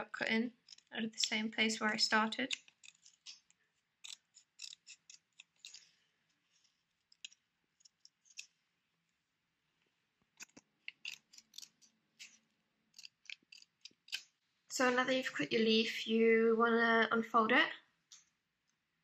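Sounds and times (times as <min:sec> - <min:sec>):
scissors snipping paper: 0:02.1 - 0:05.9, 0:07.1 - 0:08.5, 0:10.4 - 0:14.3.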